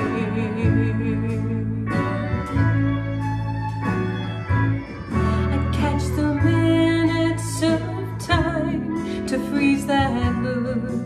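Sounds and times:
country song with guitar: 0:00.0 - 0:11.0.

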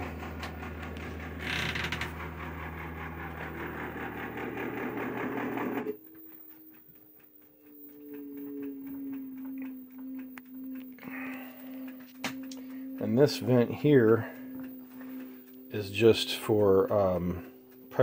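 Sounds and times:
drain pump humming: 0:00.0 - 0:06.0
machine whine: 0:00.0 - 0:18.0.

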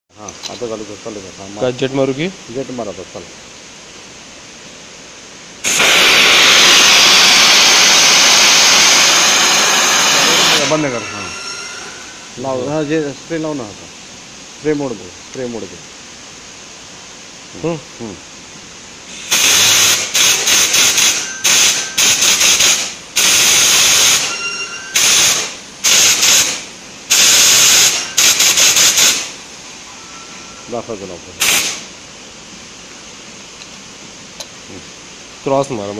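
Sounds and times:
water mist spraying hiss: 0:03.6 - 0:11.3, 0:18.6 - 0:30.2, 0:31.4 - 0:35.4.

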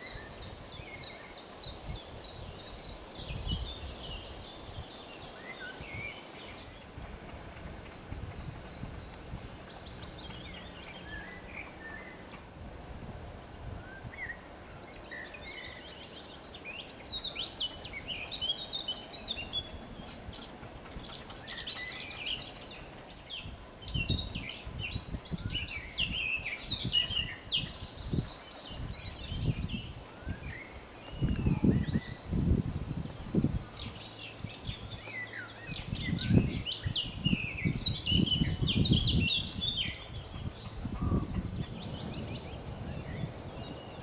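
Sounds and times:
songbirds chirping and trilling: 0:00.0 - 0:44.0
steady outdoor hiss: 0:00.0 - 0:44.0
wind rumble on microphone: 0:00.0 - 0:44.0.

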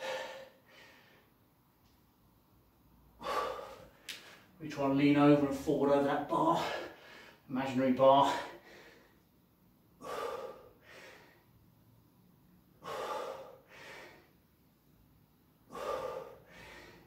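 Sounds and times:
man breathing heavily: 0:00.0 - 0:01.5, 0:03.1 - 0:04.6, 0:06.4 - 0:07.5, 0:08.2 - 0:09.3, 0:09.9 - 0:12.0, 0:12.6 - 0:14.6, 0:15.5 - 0:17.0.

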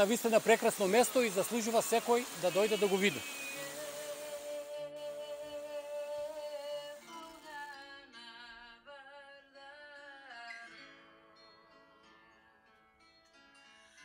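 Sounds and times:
slow vibrato melody: 0:00.8 - 0:08.2.

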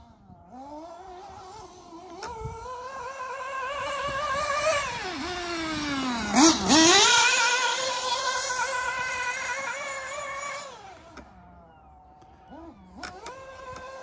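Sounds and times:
model car nitro engine revving: 0:00.5 - 0:11.4, 0:12.5 - 0:14.0.

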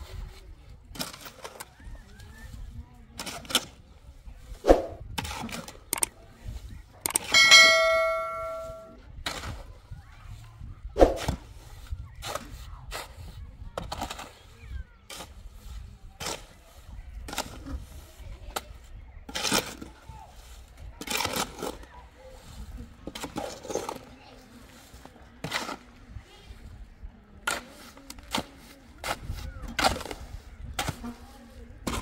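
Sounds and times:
metal wheelbarrow ringing: 0:07.2 - 0:09.0
shovel scraping wet mix: 0:22.4 - 0:26.0.

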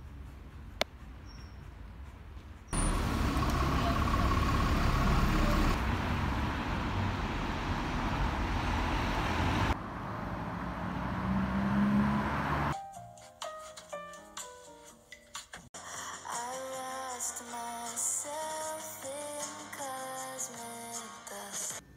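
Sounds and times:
cars and buses passing: 0:00.0 - 0:12.8
low engine hum: 0:02.7 - 0:12.7.

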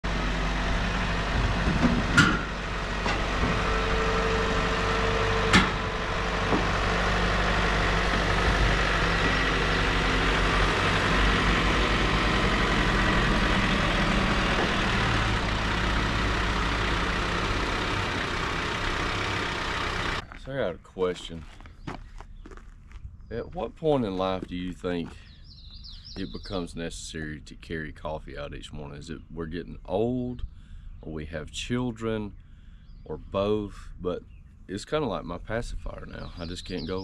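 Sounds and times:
tractor diesel engine running: 0:00.0 - 0:37.0
sharp bangs on steel trailer: 0:05.4 - 0:05.9.

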